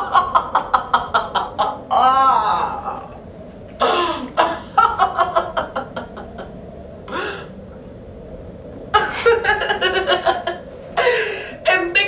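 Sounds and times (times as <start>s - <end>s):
woman laughing: 0.0s - 3.1s, 3.8s - 7.4s, 9.0s - 11.6s.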